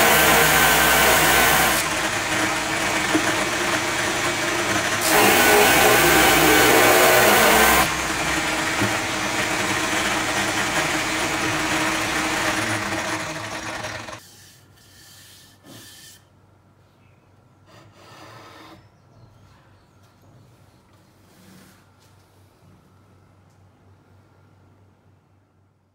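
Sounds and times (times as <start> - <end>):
drum sander grinding wood: 0.0 - 14.2.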